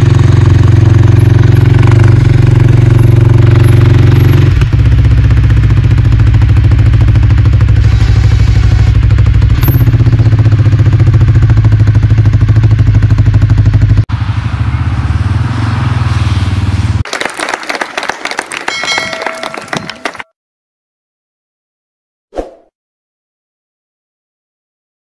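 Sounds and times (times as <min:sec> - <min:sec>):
atv engine running: 0:00.0 - 0:15.6.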